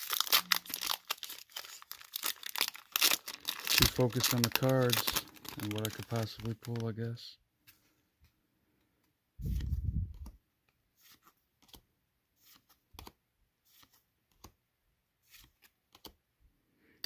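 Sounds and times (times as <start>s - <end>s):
cards clicking and rustling: 0.0s - 7.2s, 15.3s - 16.2s.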